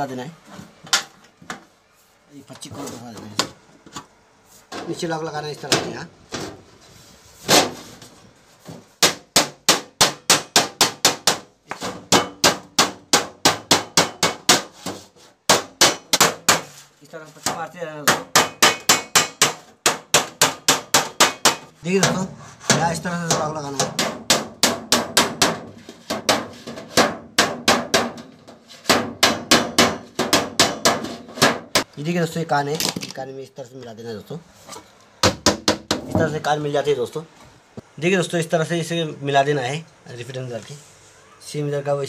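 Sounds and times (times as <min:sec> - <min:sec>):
hammer striking sheet metal: 0:09.0 - 0:16.8, 0:17.5 - 0:31.9.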